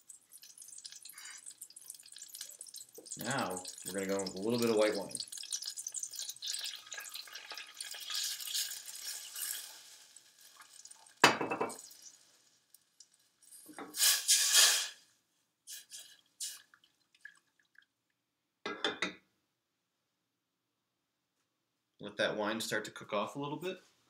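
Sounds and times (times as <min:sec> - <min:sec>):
wine crackling in hot butter: 0:00.0 - 0:15.1.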